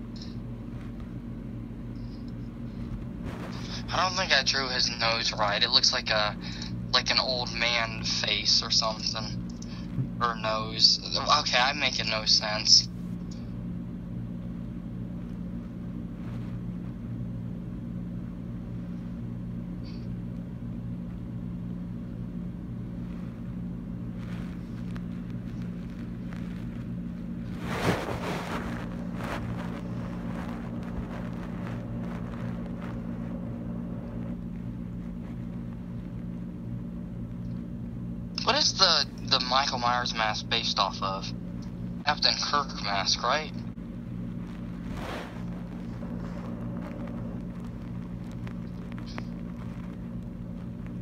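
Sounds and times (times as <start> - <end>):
low background hum: 0.0 - 51.0
rustling: 23.0 - 36.5, 44.1 - 51.0.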